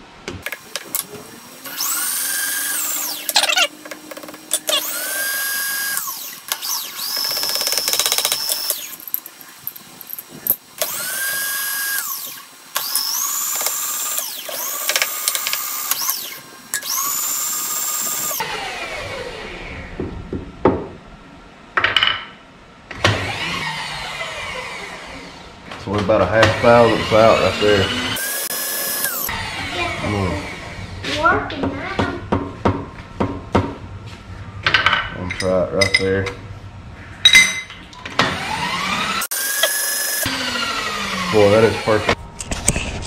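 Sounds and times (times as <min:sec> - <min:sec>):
small electric motor whining: 0:00.6 - 0:20.0, 0:23.0 - 0:25.5, 0:26.6 - 0:31.0, 0:38.3 - 0:42.2.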